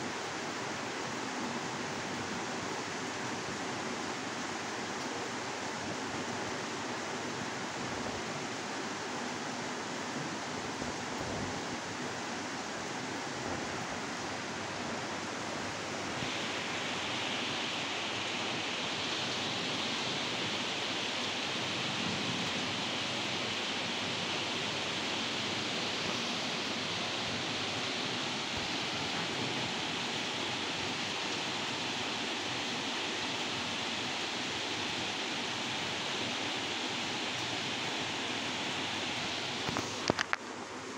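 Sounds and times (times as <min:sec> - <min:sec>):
steady rainfall: 0:00.0 - 0:40.9.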